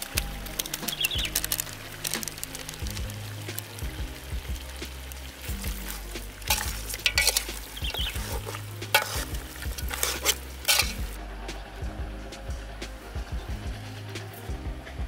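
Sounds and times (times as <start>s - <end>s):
meat sizzling: 0.0s - 15.0s
metal spatula scraping a pot: 4.8s - 11.2s.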